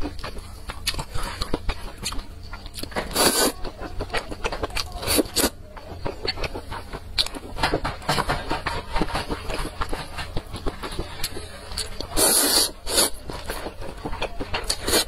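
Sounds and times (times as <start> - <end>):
wet chewing: 0.0 - 15.0
person slurping noodles: 3.1 - 3.6, 12.2 - 13.2.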